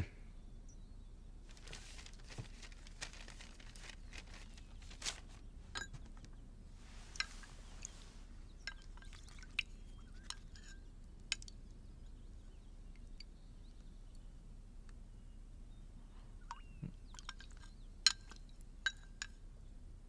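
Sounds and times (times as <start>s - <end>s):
soft hiss: 0.0s - 17.1s
sipping: 7.1s - 10.6s.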